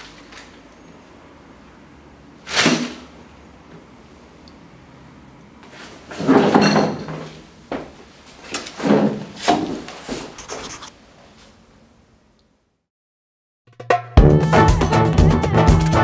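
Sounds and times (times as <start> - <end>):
scrapes and knocks on wood: 6.1 - 7.9, 8.6 - 10.9.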